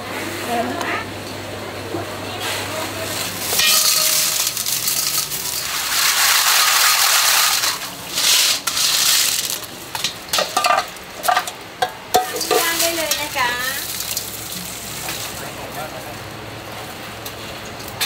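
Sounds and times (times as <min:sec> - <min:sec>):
metal colander clinking: 0:03.4 - 0:09.7, 0:10.3 - 0:14.3
water splashing into colander: 0:03.5 - 0:09.6.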